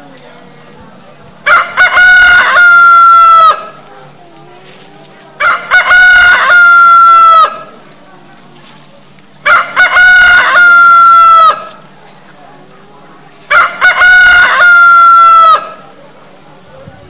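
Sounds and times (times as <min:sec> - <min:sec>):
rooster crowing: 0:01.4 - 0:03.8, 0:05.4 - 0:07.7, 0:09.4 - 0:11.7, 0:13.5 - 0:15.8.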